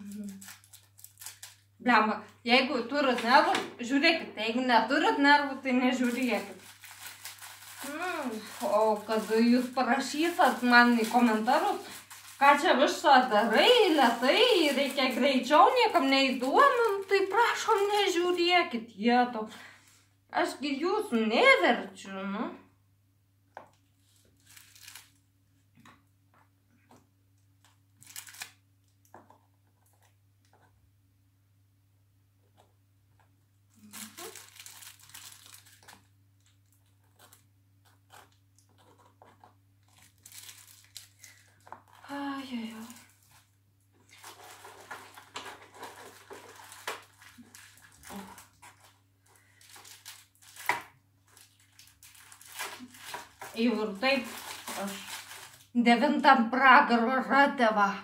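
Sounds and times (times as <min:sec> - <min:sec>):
plastic packaging rustling: 0:00.0 - 0:01.8, 0:05.0 - 0:18.6, 0:23.6 - 0:25.2, 0:27.6 - 0:30.6, 0:33.7 - 0:55.8
faint steady hum: 0:00.0 - 0:58.0
plastic tray crinkling: 0:05.8 - 0:18.4, 0:24.1 - 0:25.2, 0:28.0 - 0:30.2, 0:33.8 - 0:55.7.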